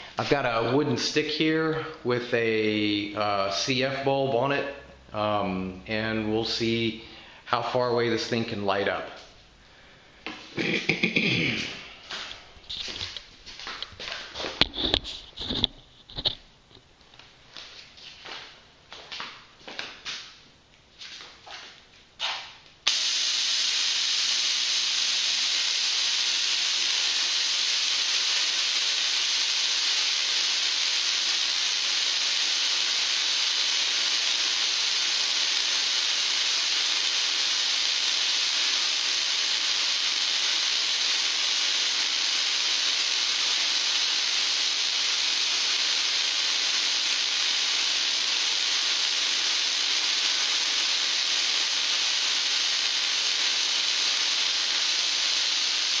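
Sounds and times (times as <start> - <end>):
tesla coil spark discharge: 22.2 - 56.0.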